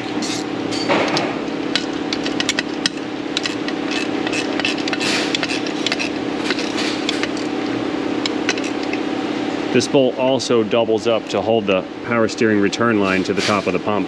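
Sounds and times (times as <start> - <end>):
vacuum pump humming: 0.0 - 14.0
ratchet wrench clicking: 1.7 - 7.5.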